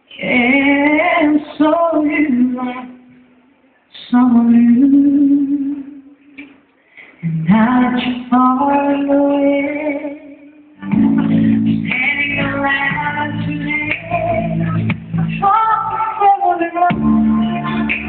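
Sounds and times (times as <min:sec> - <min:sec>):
woman singing into microphone: 0:00.1 - 0:03.2, 0:03.9 - 0:06.1, 0:07.2 - 0:18.0
backing music with bass: 0:10.8 - 0:18.0.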